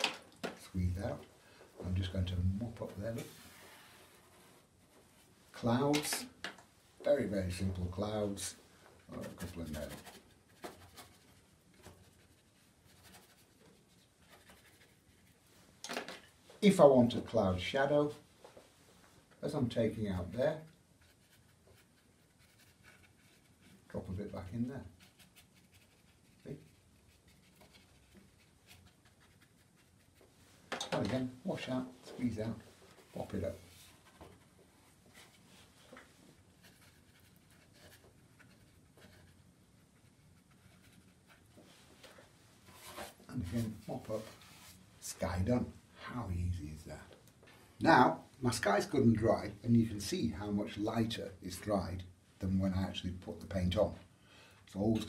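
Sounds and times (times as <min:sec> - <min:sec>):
brush strokes on paper: 0:01.9 - 0:05.8, 0:07.0 - 0:15.8, 0:18.1 - 0:30.7, 0:31.4 - 0:45.4.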